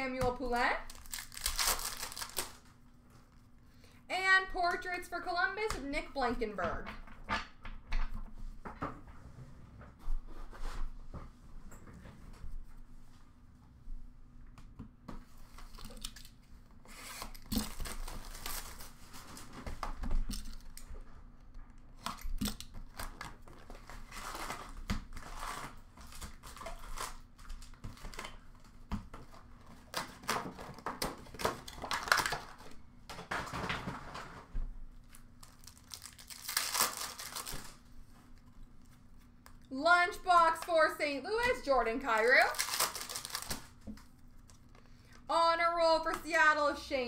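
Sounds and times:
wrappers tearing and crinkling: 0.8 - 2.7, 16.9 - 19.4, 22.6 - 28.2, 29.8 - 32.7, 35.0 - 37.9, 42.0 - 44.7.

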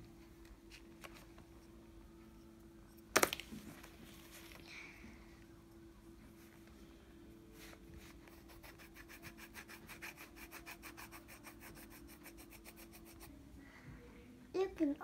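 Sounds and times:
pencil scratching on paper: 8.0 - 13.3.

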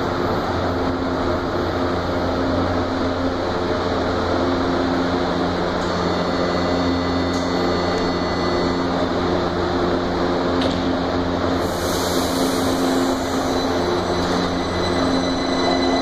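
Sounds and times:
station ventilation: 0.0 - 16.0
steady hum of metro train: 0.0 - 16.0
faint high whine: 4.6 - 10.1, 11.6 - 16.0.

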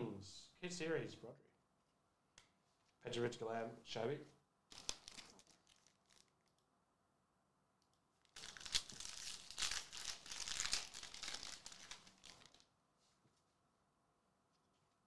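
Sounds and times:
foil wrapper crinkling: 4.7 - 6.6, 8.3 - 12.7.

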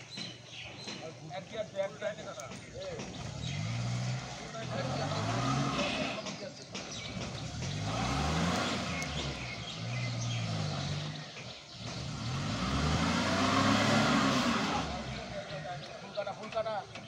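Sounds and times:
van engine revving hard: 3.1 - 16.2.

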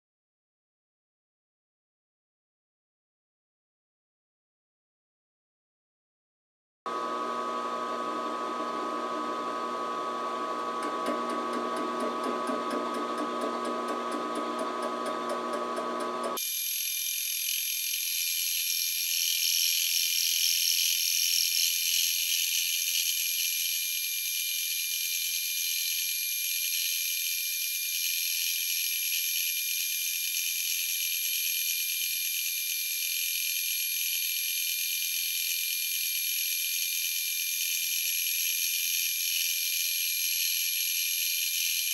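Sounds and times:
milling machine whine: 6.9 - 41.9
metal cutting noise: 10.5 - 41.9.

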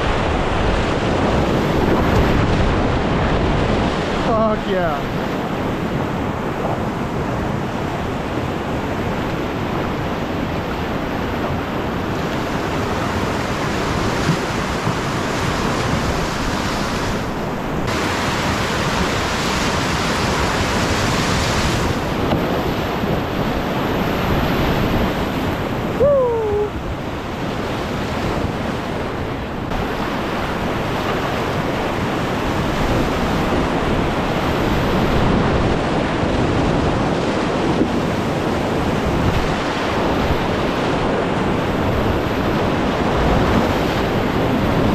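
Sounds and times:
whitewater rapids rushing: 0.0 - 28.2
wind noise on microphone: 0.0 - 44.9.

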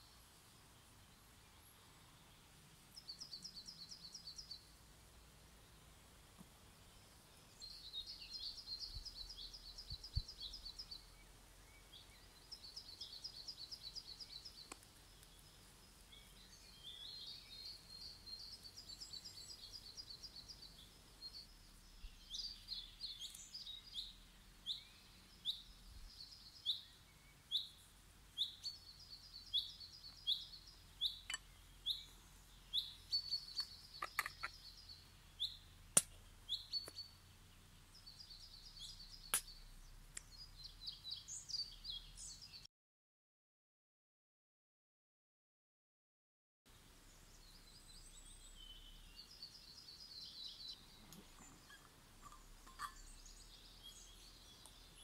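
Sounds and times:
songbirds trilling: 0.0 - 4.8, 6.8 - 42.6, 47.0 - 55.0
small sharp clicks: 14.6 - 15.5, 33.5 - 34.6, 35.9 - 36.2.

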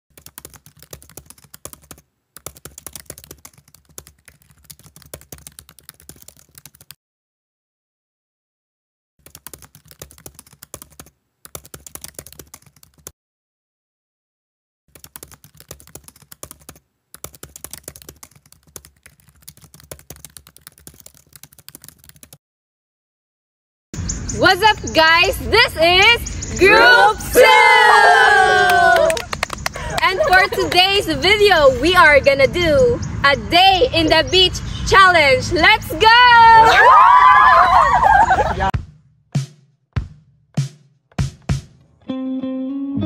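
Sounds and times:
keyboard typing: 0.1 - 7.0, 9.2 - 13.1, 14.9 - 22.4.

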